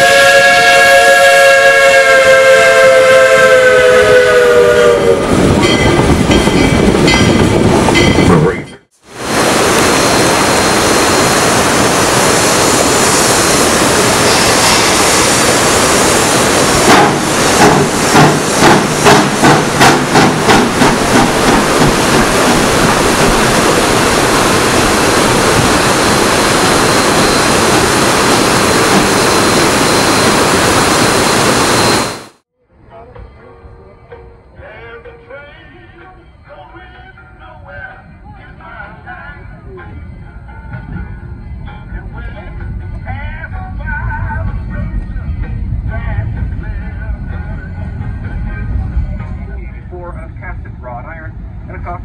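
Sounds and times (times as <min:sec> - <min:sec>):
steam hissing: 0:09.0 - 0:32.3
locomotive exhaust chuffs: 0:16.6 - 0:26.0.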